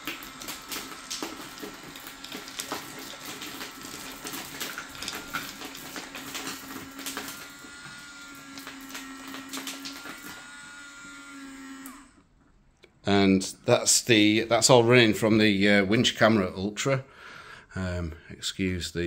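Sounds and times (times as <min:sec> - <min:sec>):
small electric motor humming: 0:00.0 - 0:12.3.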